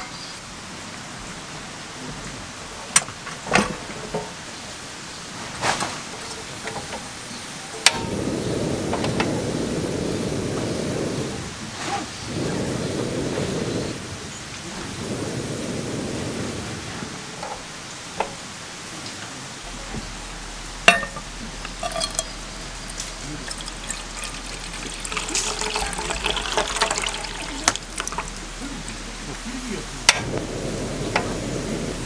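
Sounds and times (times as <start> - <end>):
gas burner flame rushing: 7.8 - 19.0, 19.6 - 32.0
water pouring into pan: 19.8 - 30.3
pan knocking on metal supports: 20.9 - 22.4.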